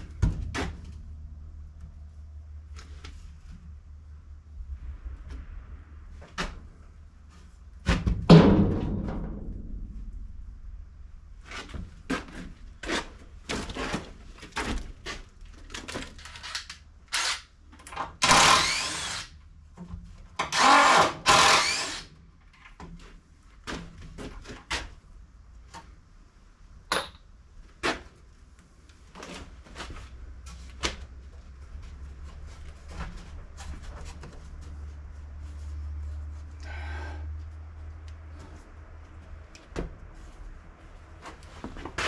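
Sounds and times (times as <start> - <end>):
cordless drill driving screws: 16.4 - 17.5, 18.2 - 19.3, 20.5 - 22.1.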